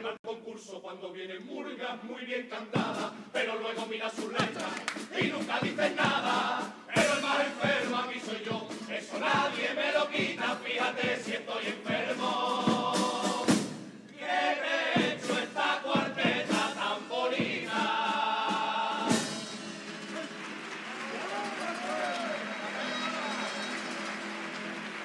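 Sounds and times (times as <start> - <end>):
male chorus singing in harmony: 0.0 - 19.5
guitar: 19.1 - 25.0.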